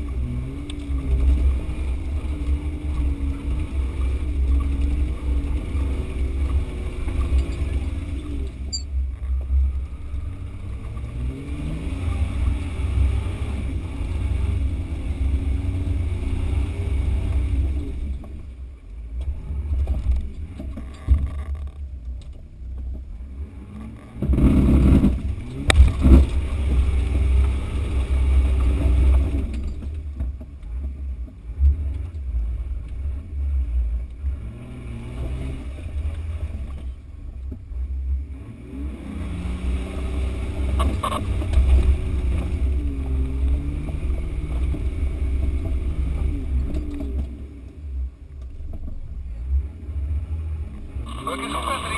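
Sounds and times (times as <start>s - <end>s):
off-road engine revving: 0.0s - 22.1s, 22.9s - 51.9s
heavy low rumble: 40.3s - 51.9s.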